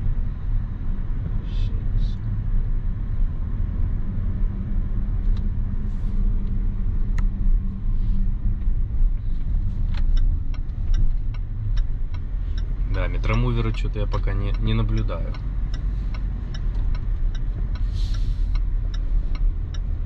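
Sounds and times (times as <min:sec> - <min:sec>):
car interior low rumble: 0:00.0 - 0:20.0
turn signal ticking: 0:06.4 - 0:20.0.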